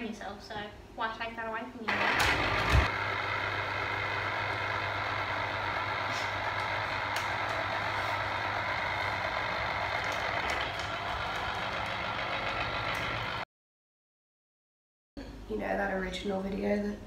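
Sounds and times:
citrus juicer motor running: 0:01.9 - 0:13.4.

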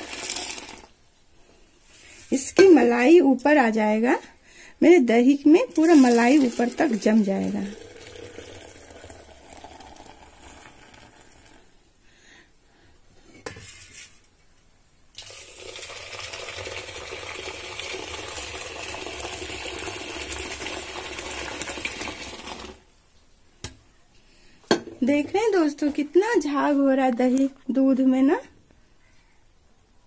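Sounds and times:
milk pouring and splashing into pot: 0:00.0 - 0:01.0, 0:05.7 - 0:11.7, 0:15.2 - 0:22.9.

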